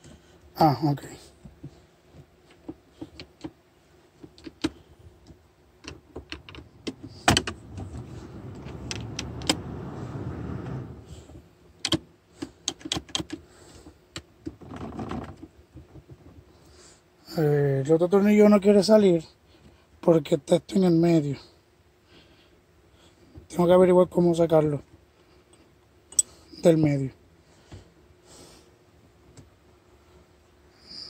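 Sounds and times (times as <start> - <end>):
steady scraping: 6.6 - 11.5.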